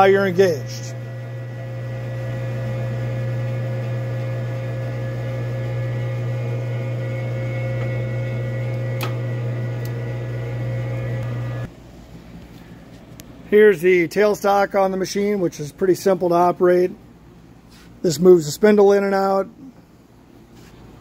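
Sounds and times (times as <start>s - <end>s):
lathe motor and gears humming: 0.0s - 11.7s.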